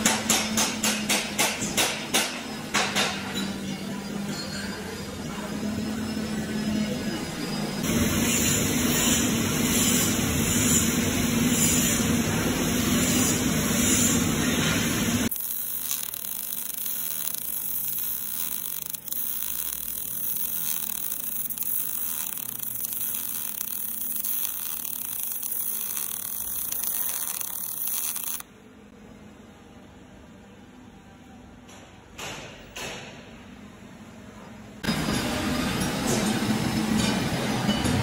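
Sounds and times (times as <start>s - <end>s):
welding arc crackling and hissing: 7.8s - 28.4s.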